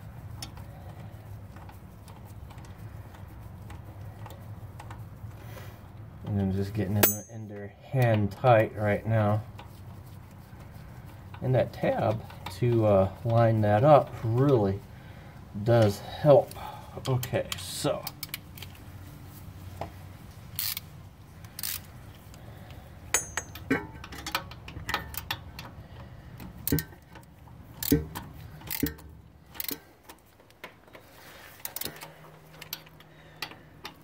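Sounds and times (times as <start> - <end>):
hand tools clinking on bolts: 6.8 - 8.7, 22.6 - 34.0.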